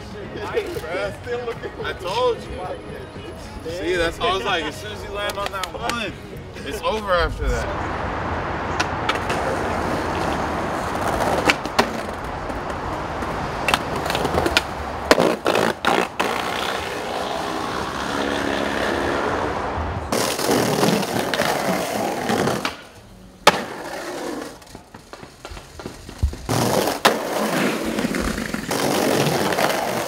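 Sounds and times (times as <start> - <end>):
skateboard wheels rolling on pavement: 0.0 - 30.0
skateboard trucks grinding on stone: 9.0 - 19.5, 20.1 - 30.0.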